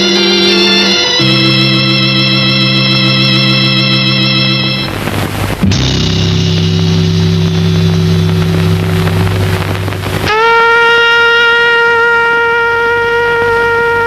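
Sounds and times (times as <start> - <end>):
low sustained orchestral tones: 0.0 - 10.3
wind instrument long held note: 0.0 - 14.0.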